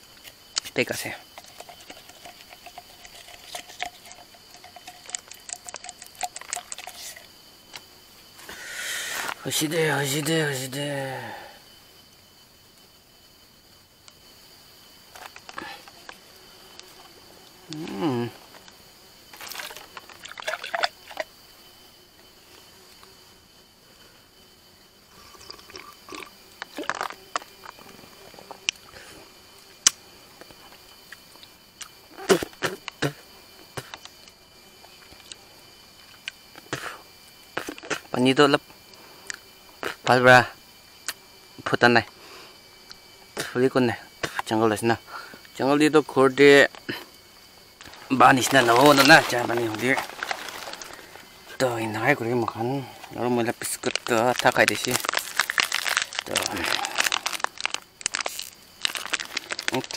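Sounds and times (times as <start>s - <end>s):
wood and bamboo crackling: 0.3s - 7.8s, 17.7s - 21.4s, 47.8s - 59.9s
person chewing crunchy food: 25.3s - 27.8s, 47.8s - 51.2s, 54.0s - 59.9s.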